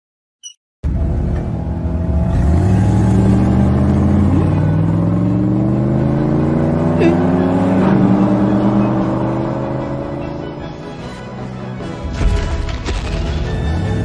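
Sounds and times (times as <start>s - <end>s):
cartoon car engine rising: 2.0s - 10.8s.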